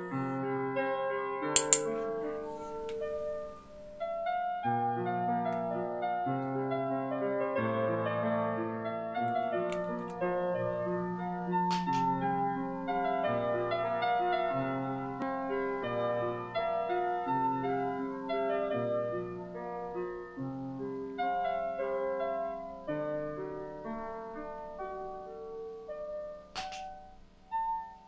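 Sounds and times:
slow piano music: 0.0s - 28.0s.

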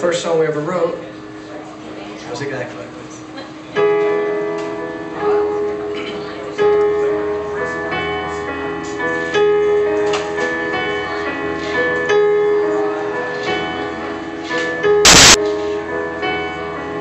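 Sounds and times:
digital piano chords and melody: 3.8s - 15.4s.

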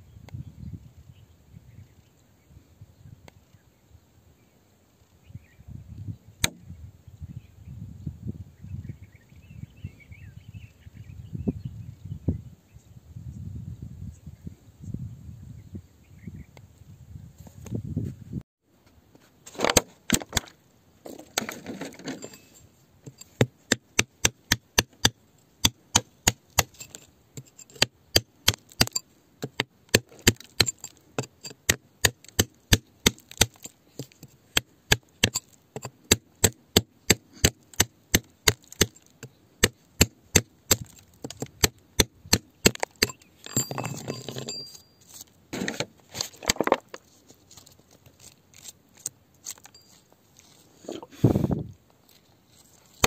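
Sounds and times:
rod knocking into stony soil: 23.1s - 44.6s.

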